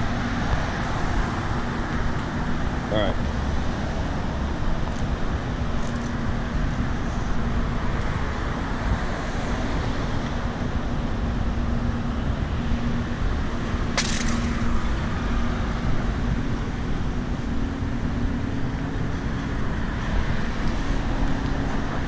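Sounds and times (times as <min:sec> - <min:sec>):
city street rumble: 0:00.0 - 0:22.0.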